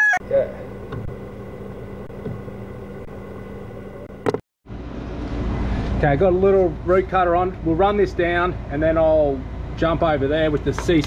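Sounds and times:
rooster crowing: 0.0s - 0.7s
steady machine hum: 0.2s - 10.4s.

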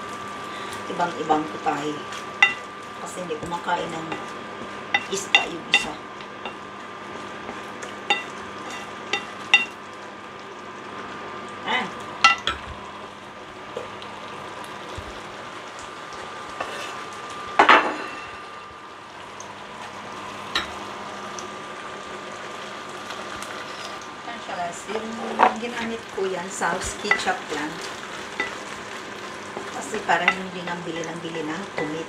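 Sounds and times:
fish simmering and sizzling: 0.0s - 32.0s
wooden spatula scraping a pan: 16.6s - 17.1s.

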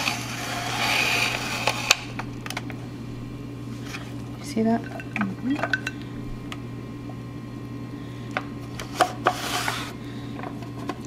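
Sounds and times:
spiralizer cutting and scraping: 0.0s - 2.1s.

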